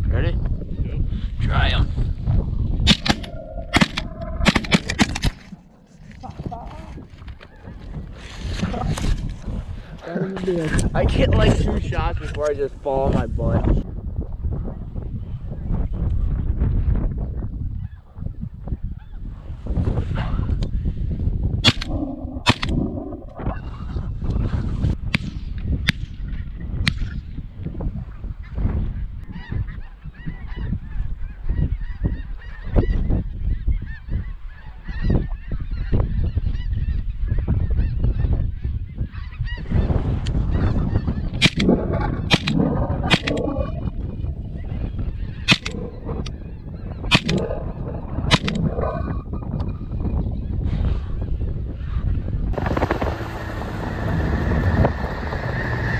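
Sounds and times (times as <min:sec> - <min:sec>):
wind buffeting microphone: 0:00.0 - 0:55.9
shotgun blasts: 0:02.9 - 0:05.5.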